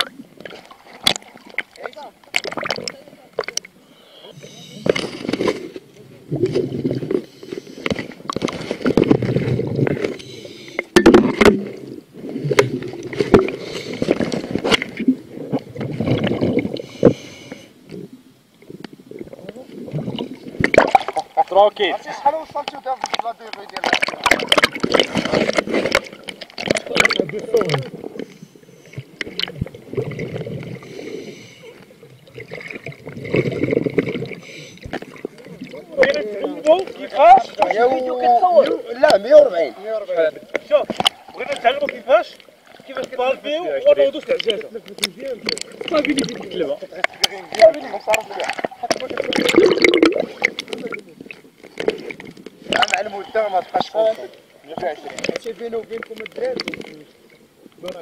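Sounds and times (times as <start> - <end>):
underwater exhaled bubbles: 0.0 - 21.4, 23.0 - 37.6, 44.4 - 53.5
water sloshing and gurgling: 0.0 - 58.0.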